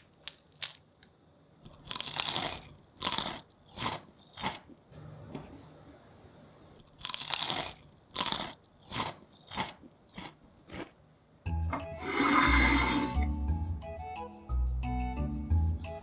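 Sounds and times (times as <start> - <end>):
crunchy fries being chewed: 0.0 - 1.0, 1.6 - 4.8, 6.8 - 11.0
music: 11.4 - 16.0.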